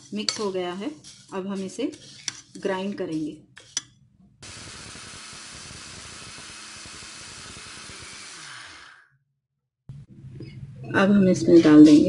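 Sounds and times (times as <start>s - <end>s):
mixer grinder running: 4.4s - 9.1s.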